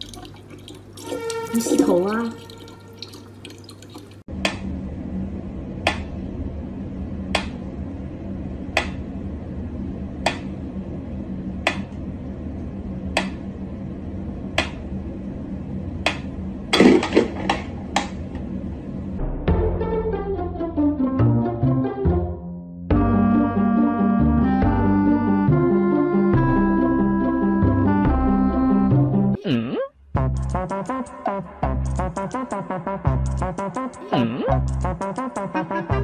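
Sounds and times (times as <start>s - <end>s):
steady low hum: 2.3s - 19.4s.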